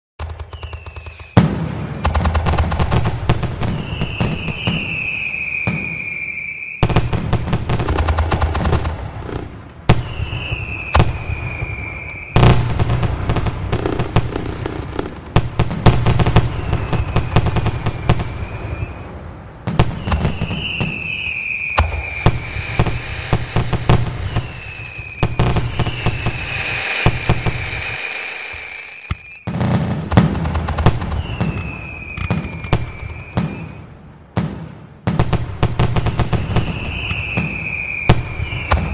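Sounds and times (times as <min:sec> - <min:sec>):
falling firework whistle: 0:00.2 - 0:02.7, 0:03.4 - 0:07.5, 0:09.9 - 0:14.4, 0:15.9 - 0:29.7, 0:30.9 - 0:34.0, 0:35.9 - 0:38.9
fireworks crackling and banging: 0:00.2 - 0:38.9.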